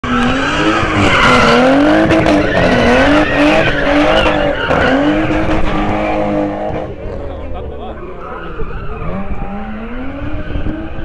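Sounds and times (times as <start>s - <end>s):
car engine revving: 0.0s - 11.0s
tyres squealing: 0.1s - 6.4s.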